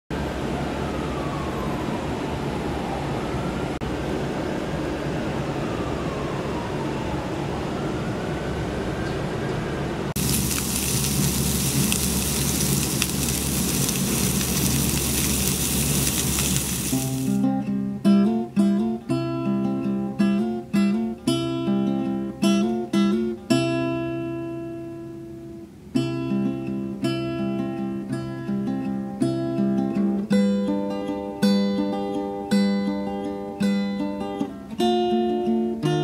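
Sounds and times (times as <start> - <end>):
distant siren wailing: 0.1 - 17.2
sausages sizzling in oil: 10.2 - 17.4.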